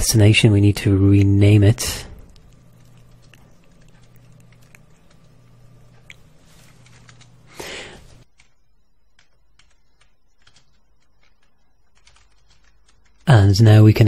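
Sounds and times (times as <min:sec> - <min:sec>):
low hum: 0:00.6 - 0:12.0
keyboard typing clicks: 0:02.2 - 0:07.4, 0:08.0 - 0:13.3.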